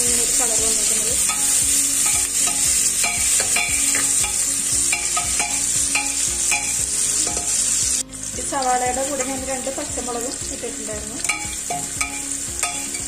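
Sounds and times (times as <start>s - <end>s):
onions sizzling in oil: 0.0s - 13.0s
spatula scraping and knocking pot: 1.2s - 7.7s.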